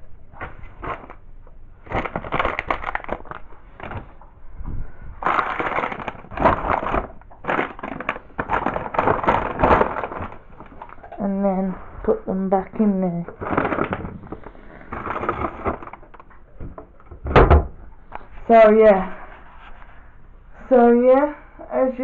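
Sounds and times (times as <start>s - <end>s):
close rustling and crinkling: 0.3s - 17.1s.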